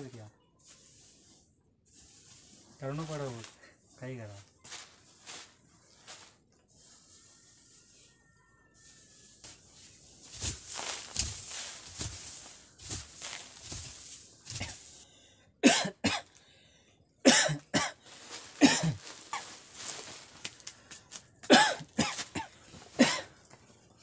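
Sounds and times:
rustling of straw chaff: 0:00.0 - 0:15.0, 0:17.9 - 0:24.0
man coughing hard: 0:15.6 - 0:16.2, 0:17.2 - 0:18.0, 0:18.6 - 0:19.0, 0:21.5 - 0:23.3.

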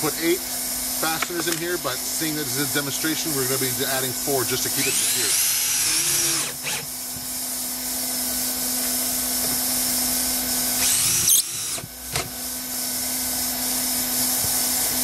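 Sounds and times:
drill motor whine: 0:04.5 - 0:14.9.

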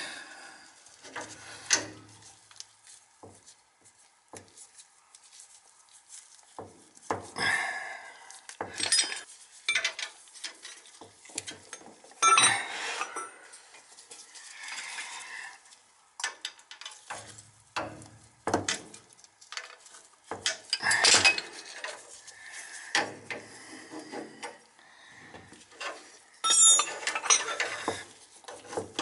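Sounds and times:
metal clinks and scrapes: 0:08.8 - 0:15.6, 0:16.2 - 0:24.6, 0:25.5 - 0:29.0
metal clatter: 0:25.8 - 0:29.0.

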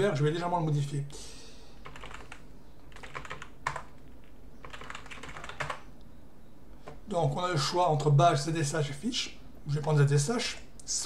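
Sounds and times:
keyboard typing clicks: 0:01.8 - 0:05.8.

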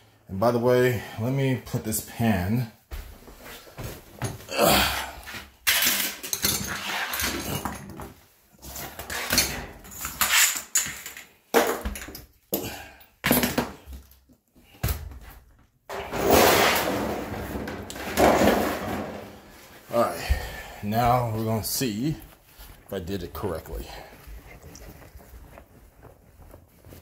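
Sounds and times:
metal pan rattling and scraping: 0:15.9 - 0:19.4.

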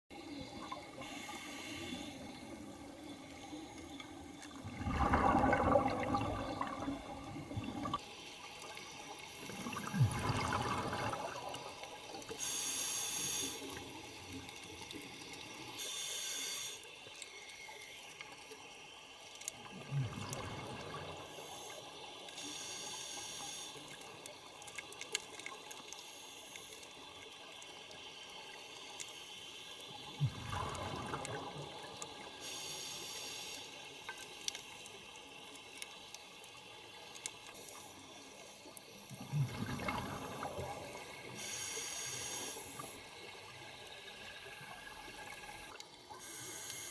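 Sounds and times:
exhaled air bubbling underwater: 0:00.1 - 0:12.5, 0:19.5 - 0:22.2, 0:29.8 - 0:32.6, 0:37.4 - 0:46.6
regulator inhale hiss: 0:00.3 - 0:04.0, 0:12.3 - 0:14.2, 0:15.8 - 0:17.4, 0:21.2 - 0:24.1, 0:25.8 - 0:27.1, 0:32.3 - 0:34.5, 0:40.9 - 0:43.4, 0:45.4 - 0:46.9.

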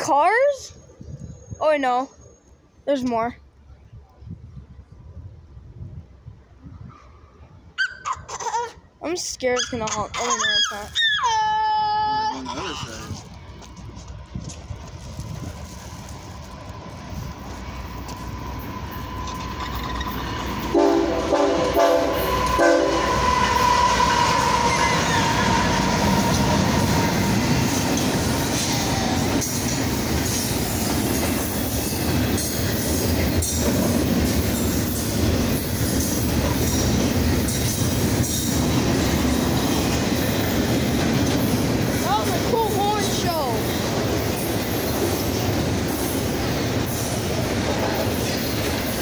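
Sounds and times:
train wheels on rails: 0:12.5 - 0:49.0
clicks of train wheels: 0:16.0 - 0:20.8, 0:27.7 - 0:49.0
locomotive horn blasts: 0:20.7 - 0:25.8.

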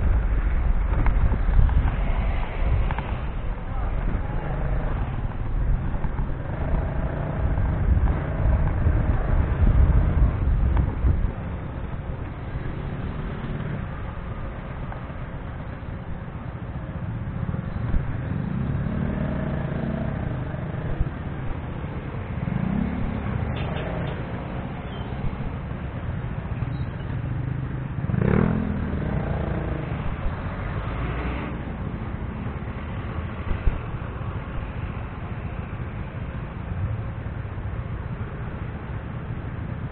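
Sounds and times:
wind and motorcycle engine rumble: 0:00.0 - 0:39.9
engine revving: 0:28.1 - 0:29.9.

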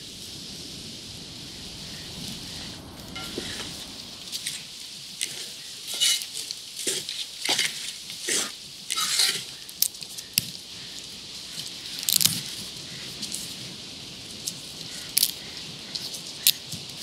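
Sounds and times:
wooden spatula scraping metal pan: 0:05.2 - 0:09.5.

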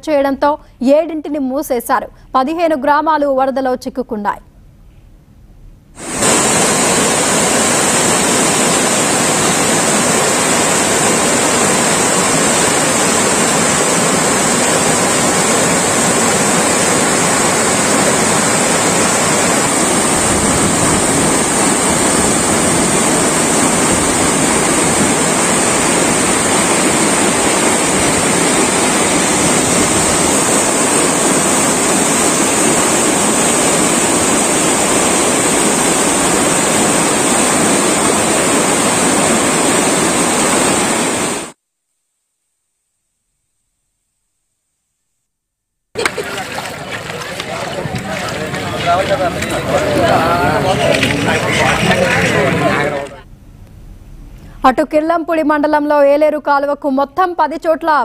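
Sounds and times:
constant high hiss: 0:03.9 - 0:41.6
floodwater rushing: 0:06.0 - 0:41.6, 0:46.0 - 0:53.2.

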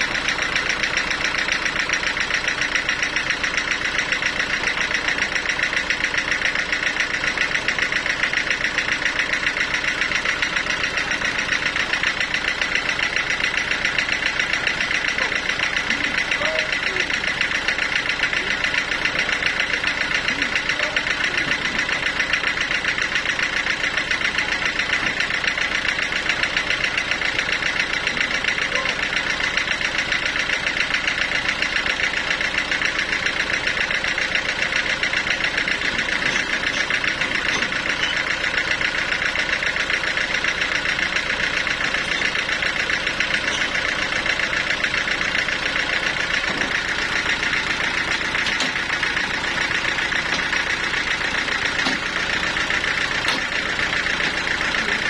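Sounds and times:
band sawmill running: 0:00.0 - 0:55.0.

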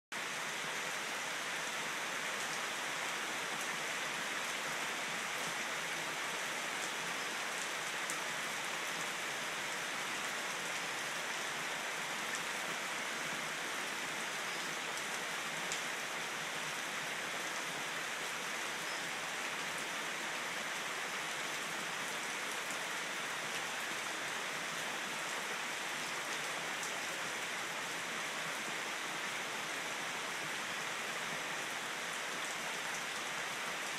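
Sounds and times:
heavy rain on foliage and pavement: 0:00.1 - 0:33.9.

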